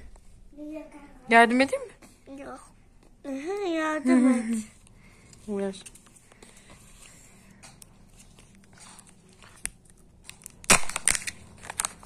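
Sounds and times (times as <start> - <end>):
foil wrapper crinkling and tearing: 9.5 - 12.0.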